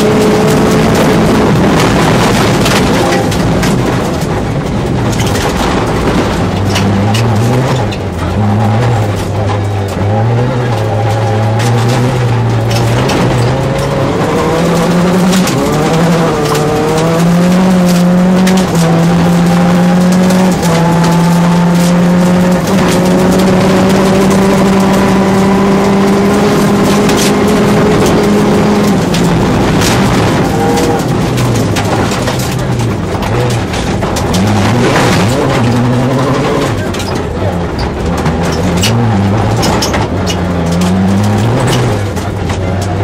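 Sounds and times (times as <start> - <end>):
car engine revving: 0.0 - 43.0
gravel hitting car: 0.0 - 43.0.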